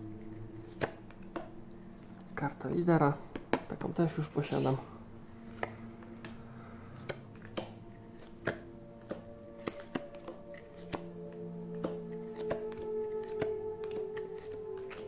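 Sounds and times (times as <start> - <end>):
soft background music: 0.0 - 15.0
trading cards clicking: 5.5 - 6.4, 7.0 - 11.1, 11.7 - 15.0.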